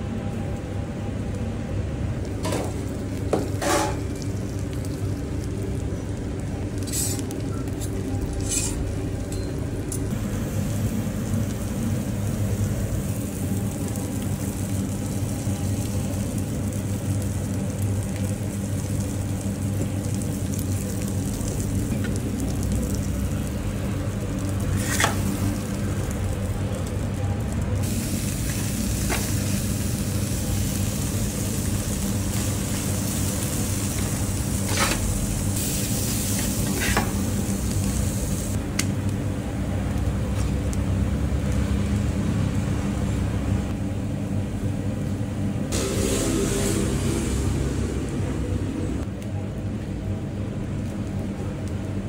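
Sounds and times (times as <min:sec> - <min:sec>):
food sizzling on a griddle: 0:02.3 - 0:09.0, 0:10.1 - 0:38.6.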